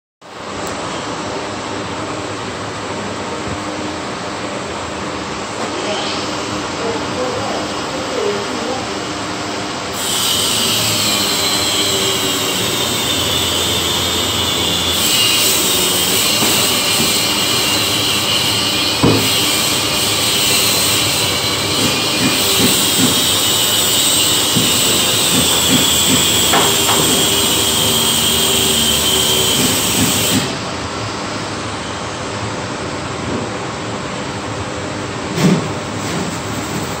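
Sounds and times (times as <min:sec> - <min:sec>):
power tool motor whine: 0:10.0 - 0:30.5
knocks: 0:19.0 - 0:19.4, 0:24.5 - 0:27.6.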